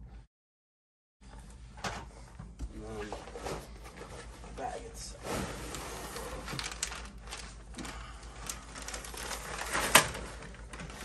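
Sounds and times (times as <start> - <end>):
cardboard box and paper rustling: 5.2 - 11.0.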